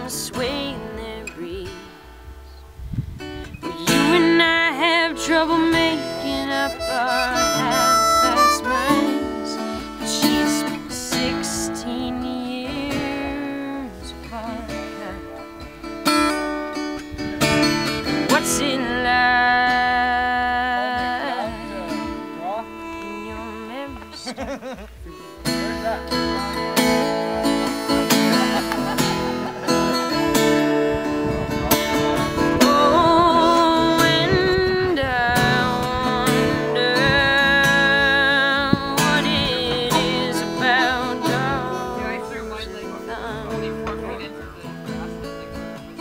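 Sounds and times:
acoustic guitar: 0.0 - 46.0
harmonica solo: 5.7 - 10.0, 21.6 - 25.6.

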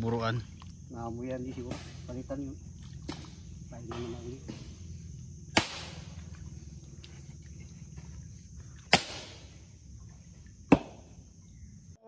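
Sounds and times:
chopping into wood: 5.5 - 6.0, 8.9 - 9.4, 10.7 - 11.1.

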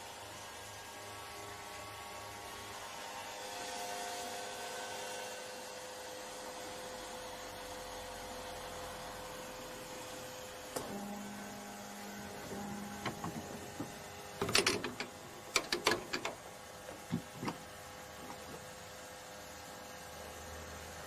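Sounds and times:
petrol pump humming: 9.2 - 20.4
mechanical clicks and clatters: 12.5 - 17.7.

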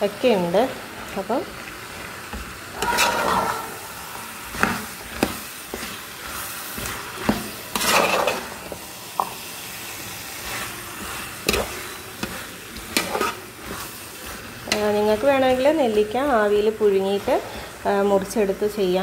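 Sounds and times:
sizzling in oil: 0.0 - 19.0
metal spoon scraping a pot: 2.8 - 5.9, 7.7 - 8.5, 11.4 - 13.4.

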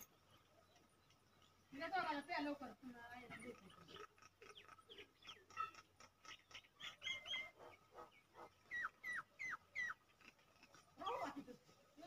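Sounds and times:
faint bird chirps: 3.3 - 10.7.

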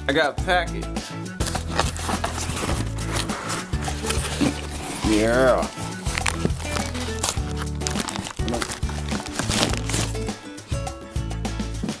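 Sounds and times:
background music with bass: 0.0 - 12.0
cardboard box rustling and tapping: 1.4 - 10.2.

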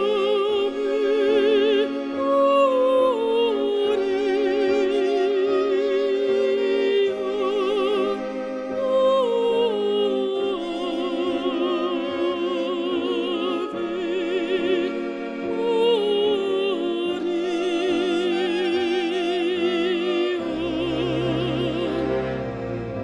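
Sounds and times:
woman singing with vibrato: 0.0 - 22.2
sustained accompaniment: 0.0 - 23.0.

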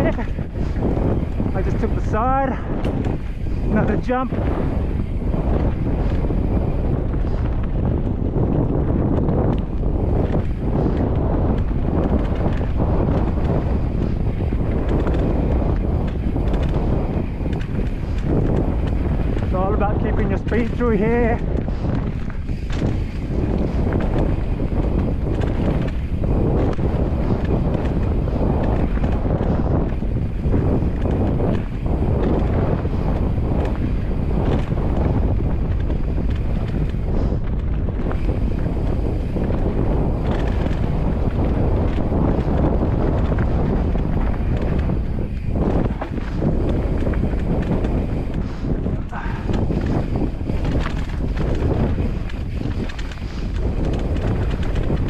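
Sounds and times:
bike ticks and rattles: 0.0 - 55.0
tyres rumbling on dirt: 0.0 - 55.0
wind buffeting microphone: 0.0 - 55.0.

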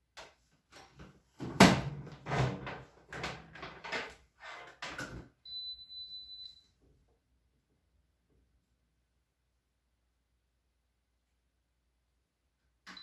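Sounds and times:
knocks and rattles of handling: 0.2 - 5.3.

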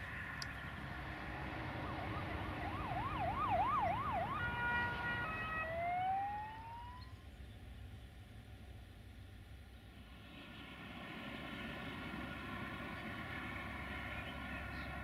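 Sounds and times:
low steady rumble: 0.0 - 15.0
siren wailing: 1.0 - 7.2.

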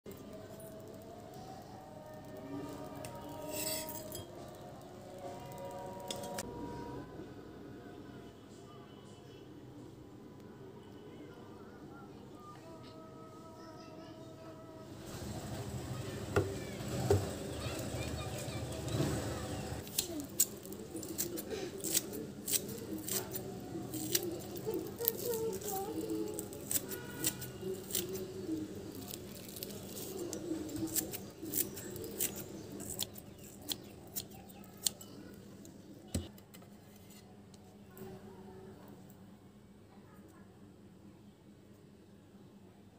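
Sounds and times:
scissors snipping onion stalks: 19.8 - 35.3.

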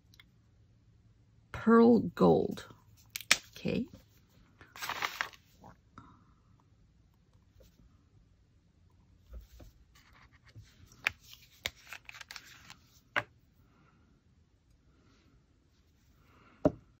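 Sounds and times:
rustling: 4.0 - 5.7.

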